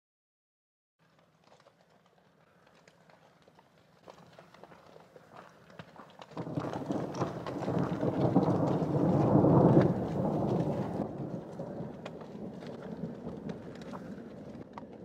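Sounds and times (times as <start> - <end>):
thunder rumbling: 6.4 - 15.0.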